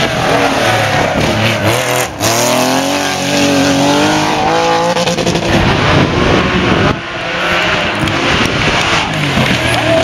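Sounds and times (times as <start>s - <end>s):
rally car engine at high revs: 0.0s - 10.0s.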